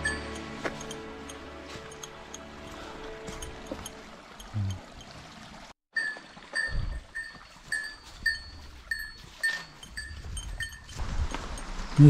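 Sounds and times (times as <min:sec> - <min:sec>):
small metal bell jingling: 0:06.6 - 0:11.0.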